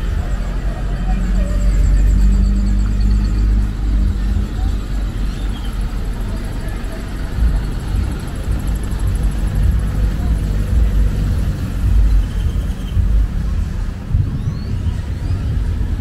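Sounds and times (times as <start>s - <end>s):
cars driving past: 0.0s - 16.0s.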